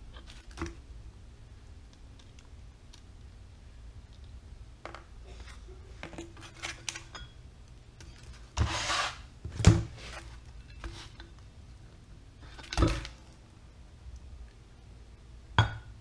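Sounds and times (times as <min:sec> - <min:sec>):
metal scraping: 0:08.2 - 0:09.3.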